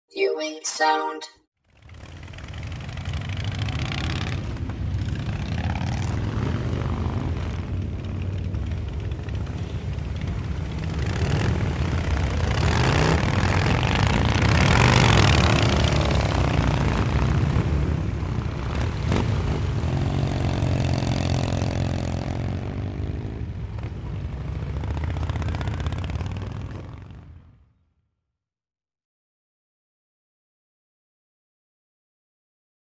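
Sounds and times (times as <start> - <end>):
motorcycle engine revving: 1.7 - 27.3
motorcycles rumbling: 1.8 - 27.6.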